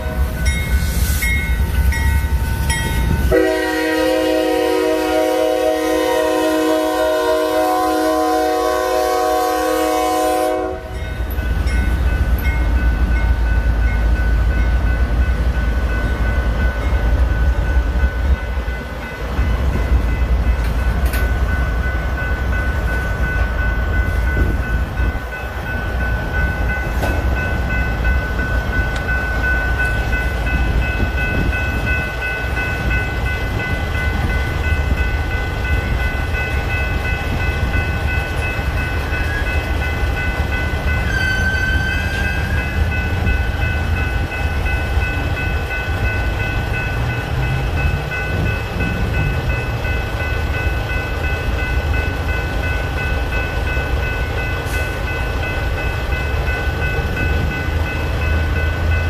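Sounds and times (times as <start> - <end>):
crossing bell ringing: 0.0 - 59.0
locomotive horn: 3.3 - 11.0.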